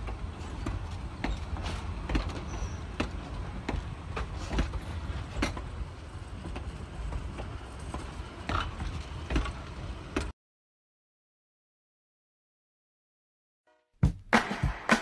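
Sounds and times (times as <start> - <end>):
train rumbling past: 0.0 - 10.3
wheels clicking over rail joints: 0.0 - 10.3.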